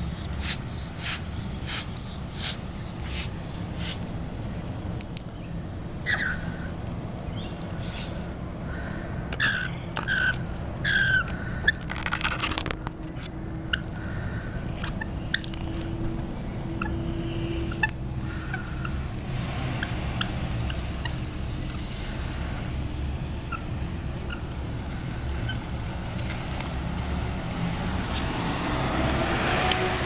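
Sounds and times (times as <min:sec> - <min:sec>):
lorikeets chirping: 0:00.0 - 0:04.0, 0:05.4 - 0:11.8, 0:16.7 - 0:19.1
raspy bird call: 0:00.0 - 0:04.0
steady low hum: 0:00.0 - 0:12.0, 0:12.6 - 0:28.4.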